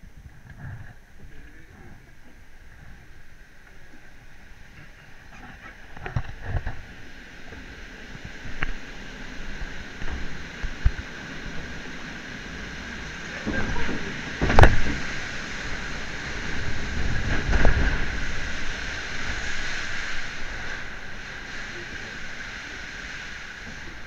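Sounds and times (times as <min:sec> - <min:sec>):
water rushing: 0:00.0 - 0:24.0
boat knocks and thumps: 0:12.5 - 0:19.3.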